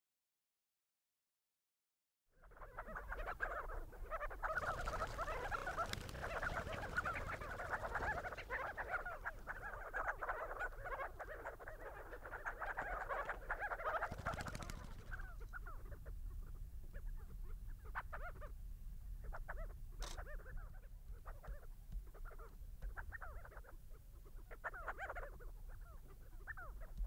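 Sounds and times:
flock of birds calling: 2.4 - 27.0.

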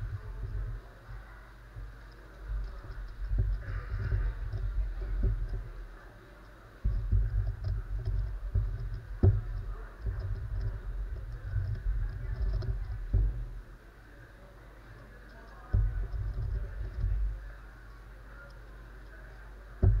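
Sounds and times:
plastic puzzle turning clatter: 2.1 - 13.6.

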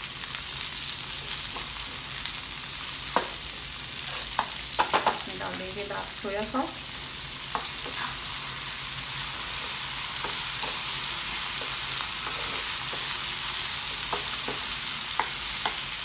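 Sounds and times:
vegetables sizzling in oil: 0.0 - 16.0
spatula scraping a pan: 3.9 - 4.5, 9.2 - 15.8.

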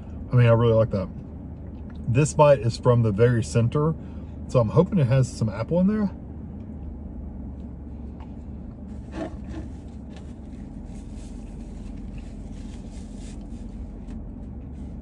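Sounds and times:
steady low hum: 0.0 - 15.0
paper napkin rubbing: 8.9 - 14.1.

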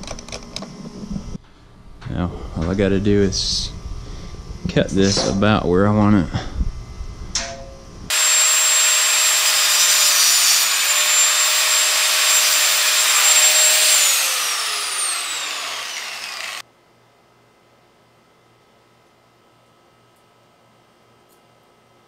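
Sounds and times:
angle grinder cutting chain: 8.1 - 16.6.

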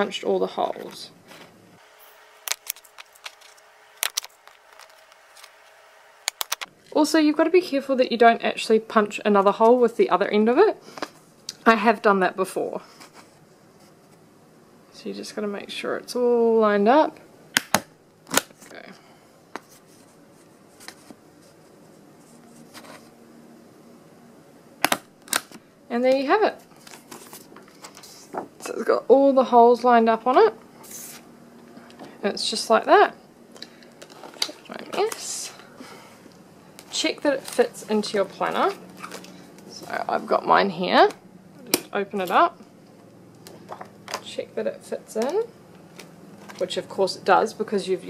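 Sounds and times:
paper rustle: 19.6 - 23.1, 26.6 - 28.5, 36.8 - 39.9.

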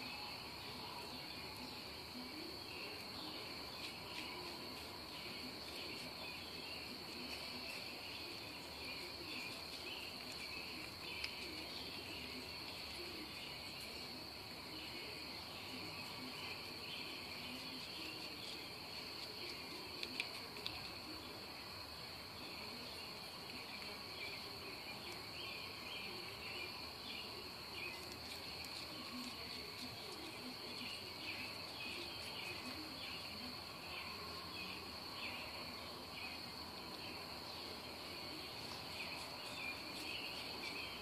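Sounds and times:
crickets trilling: 0.0 - 41.0
faint clicks: 19.8 - 21.0.

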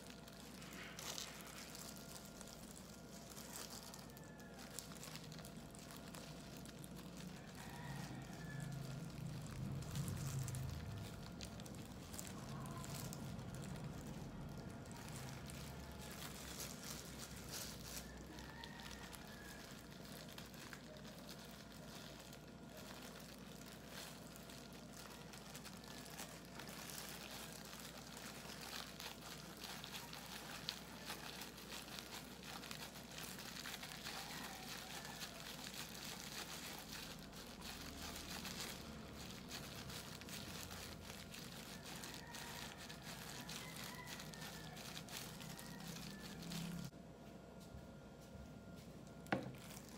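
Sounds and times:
plastic gloves crinkling: 0.0 - 49.9
bamboo mat rustling: 19.4 - 46.9.

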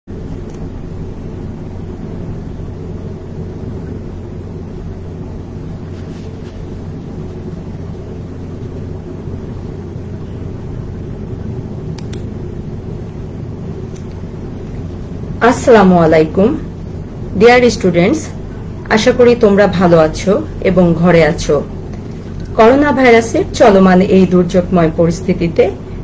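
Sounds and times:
room background rumble and hum: 0.1 - 26.0
faint clicks: 11.9 - 12.3.

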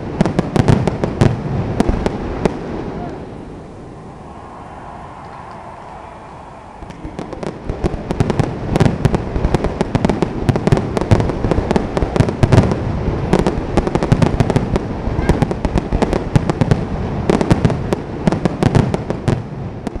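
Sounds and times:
fireworks crackling and booming: 0.0 - 20.0
murmur: 2.9 - 8.6.

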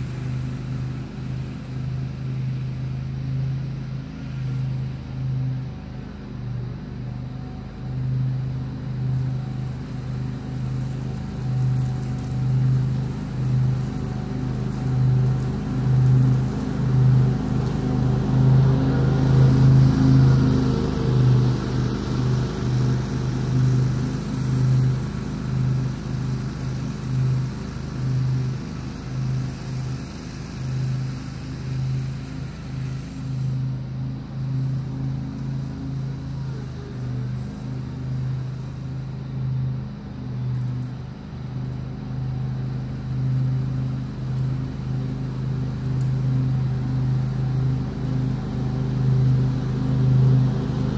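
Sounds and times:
mower engine droning: 0.0 - 50.9.

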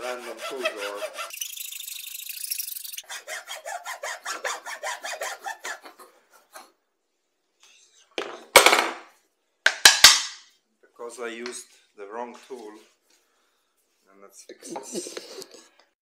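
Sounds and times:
hacksaw cutting: 0.0 - 1.9, 2.6 - 5.9.

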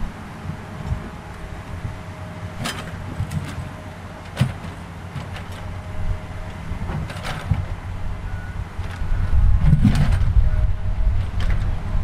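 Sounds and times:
engine humming: 0.0 - 12.0.

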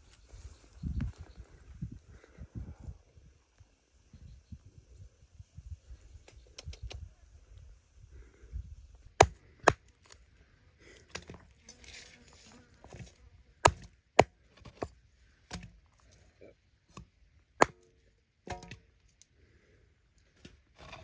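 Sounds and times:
cleaver chopping onto wooden block: 13.6 - 14.9.

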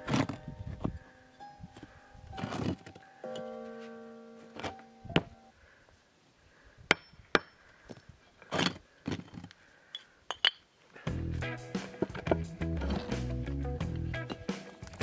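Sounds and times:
broken concrete pieces scraping: 2.4 - 3.1, 7.9 - 9.6
held musical chord: 3.1 - 5.5.

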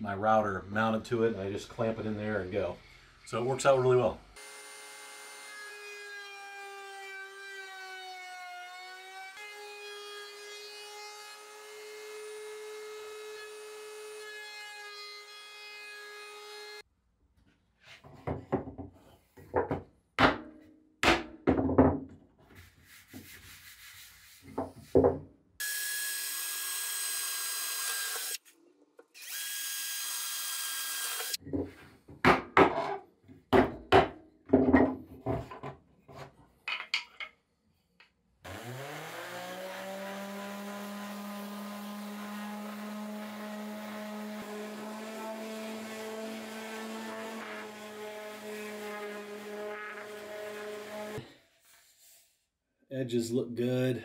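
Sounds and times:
wood router running: 38.5 - 51.2.

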